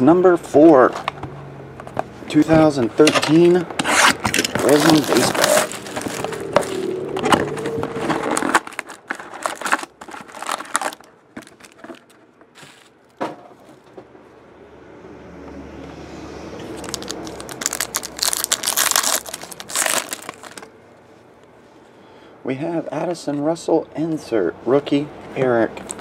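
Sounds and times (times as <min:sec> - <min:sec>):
cardboard box rustling: 0:03.8 - 0:12.9
foil pack tearing and crinkling: 0:03.8 - 0:13.0, 0:16.8 - 0:20.7.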